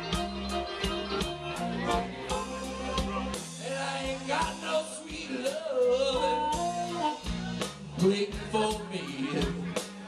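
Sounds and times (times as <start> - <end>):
harmonica lead line: 0.0 - 7.6
bass: 0.0 - 10.0
drums: 0.0 - 10.0.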